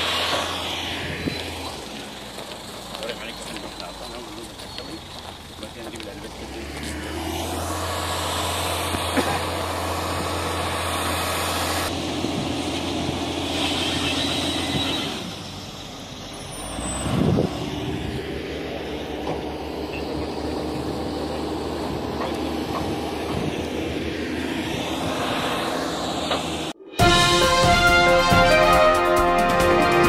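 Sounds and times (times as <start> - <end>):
heavy vehicle engine hum: 0.0 - 30.0
rush of noise: 16.8 - 28.2.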